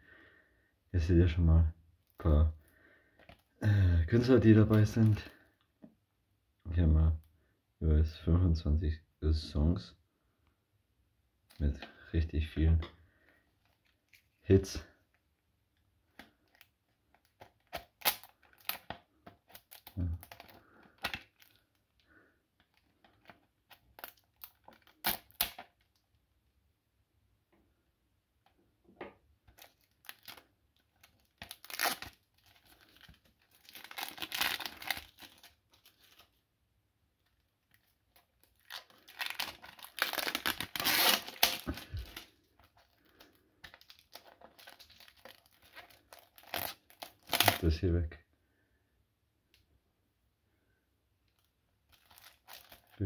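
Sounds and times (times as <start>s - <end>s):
plastic shrink-wrap tearing and crinkling: 16.4s - 22.0s, 22.6s - 26.0s, 29.5s - 36.4s, 37.3s - 47.8s, 51.3s - 53.0s.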